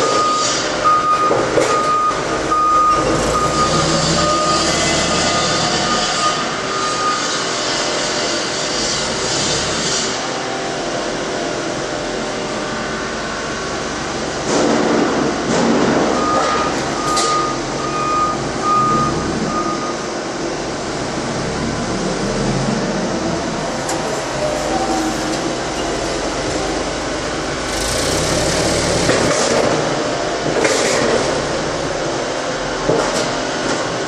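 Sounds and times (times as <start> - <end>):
backup alarm beeping: 0.0 - 4.8, 16.0 - 20.1
warehouse hum: 0.0 - 34.0.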